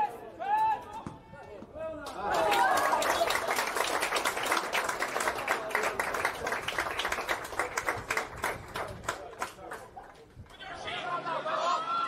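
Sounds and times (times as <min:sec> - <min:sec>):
spectators clapping: 0:02.0 - 0:10.6.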